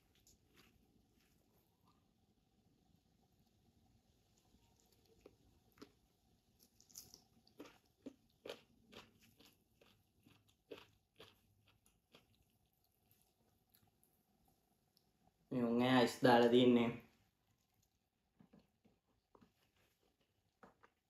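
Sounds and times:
chewing: 0:00.0 - 0:02.1, 0:04.2 - 0:15.2, 0:17.4 - 0:21.0
soft clicks and squelches of eating: 0:00.0 - 0:02.4, 0:03.2 - 0:15.4, 0:17.3 - 0:21.0.

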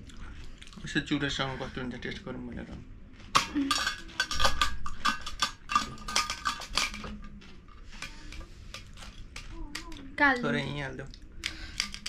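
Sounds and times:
cutlery and dishes clinking: 0:03.3 - 0:10.8.

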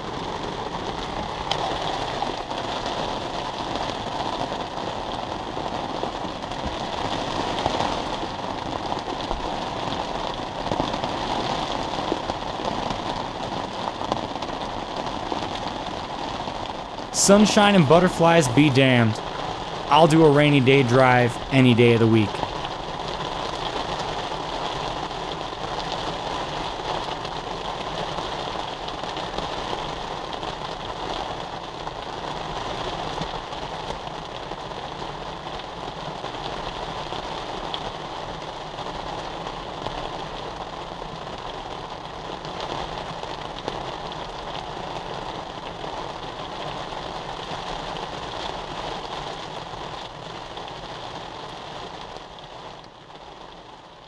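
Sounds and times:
rain on a soft car roof: 0:00.0 - 0:54.0.

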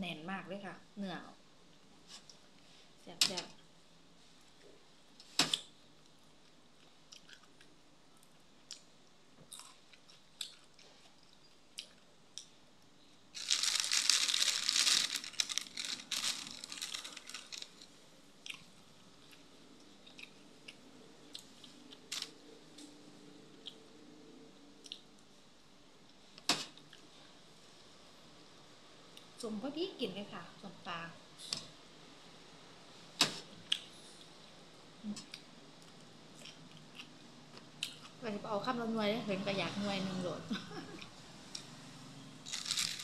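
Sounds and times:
crunching and chewing food: 0:05.5 - 0:12.6, 0:13.3 - 0:22.9, 0:24.8 - 0:25.3, 0:35.1 - 0:38.2, 0:42.4 - 0:43.0.

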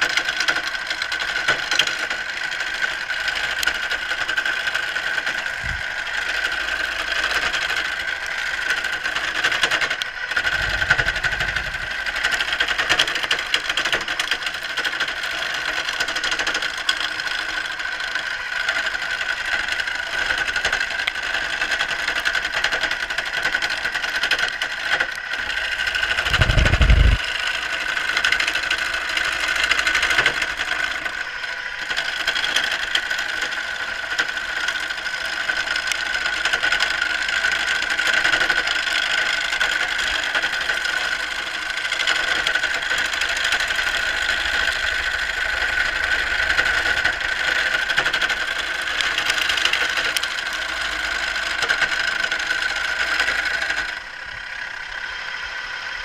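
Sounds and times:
turning tool cutting wood: 0:00.0 - 0:56.0
wood lathe whining: 0:00.0 - 0:56.0
low rumbles: 0:05.6 - 0:05.9, 0:10.3 - 0:12.6, 0:25.8 - 0:27.2.

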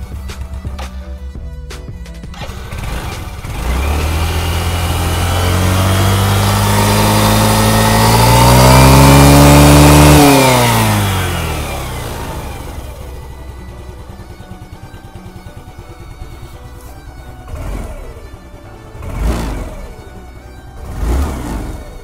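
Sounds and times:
scooter engine revving: 0:02.2 - 0:22.0.

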